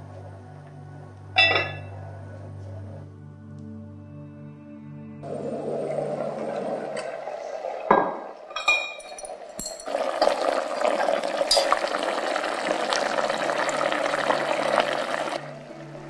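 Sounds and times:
pot lid knocking and clinking: 1.4 - 1.9
sauce bubbling thickly: 9.8 - 15.4.

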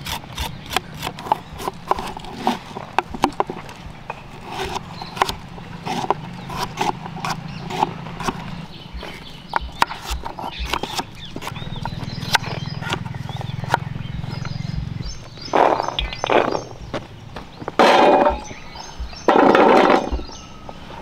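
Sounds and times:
knife chopping on wooden board: 4.4 - 13.9.

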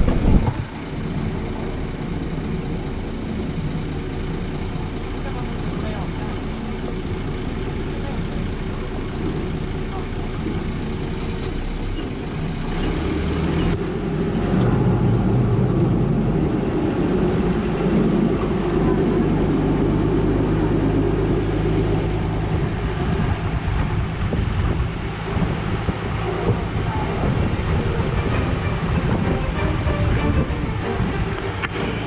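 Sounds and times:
motorboat engine running: 0.0 - 12.9, 13.7 - 32.0
wind: 0.0 - 32.0
water noise: 13.8 - 32.0.

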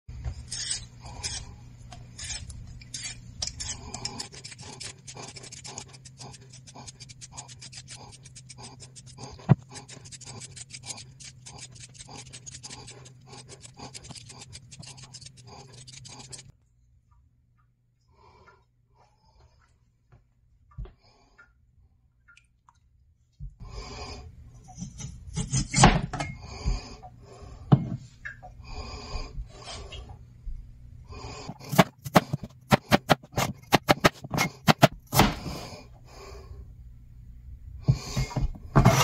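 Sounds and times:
peeler scraping potato skin: 0.3 - 16.5, 31.4 - 35.4.

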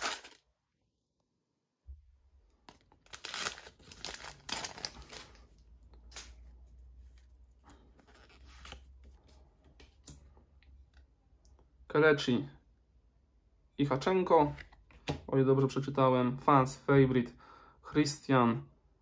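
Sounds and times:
cards rustling: 0.0 - 0.4, 2.6 - 10.1
foil sachet crinkling and tearing: 0.0 - 0.4, 2.7 - 5.5.

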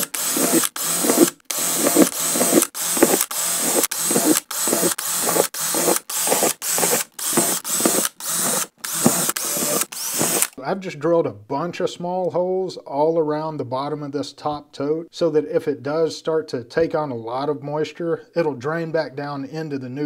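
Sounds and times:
cordless drill boring through plastic: 0.0 - 10.6.

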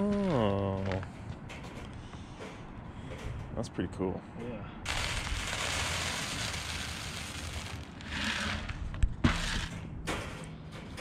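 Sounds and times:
corn kernels pouring onto wire: 4.9 - 8.7.

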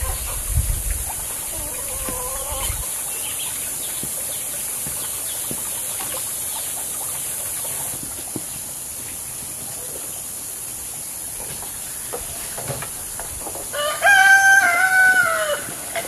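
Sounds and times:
chicken calling: 0.0 - 0.5, 1.2 - 3.1, 12.0 - 16.0
steady outdoor hiss: 0.0 - 16.0.

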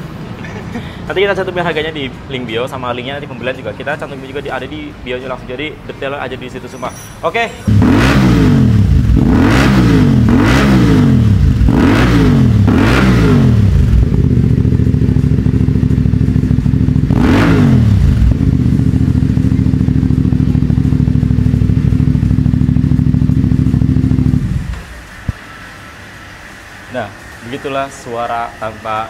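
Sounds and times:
motorcycle engine revving: 7.7 - 25.3.

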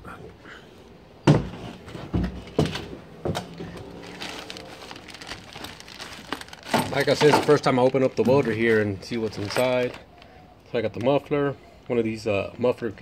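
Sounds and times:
plastic wrapping crinkling: 2.6 - 11.2.

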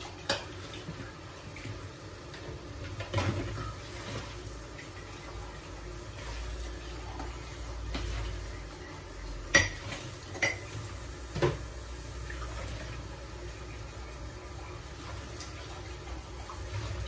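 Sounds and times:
dishes clattering in dish rack: 2.9 - 4.3, 9.5 - 11.6.

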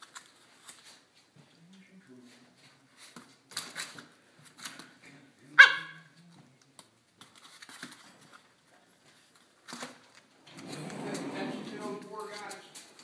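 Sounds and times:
puppy bark: 5.6 - 6.1
puppies scuffling: 7.2 - 13.0.

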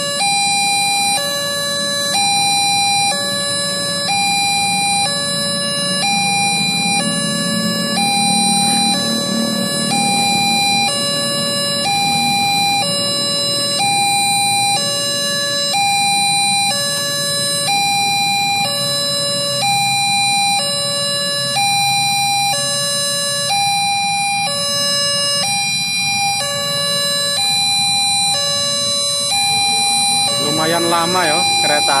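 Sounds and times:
level crossing two-tone alarm: 0.0 - 32.0
passing train rumble: 5.4 - 14.0.

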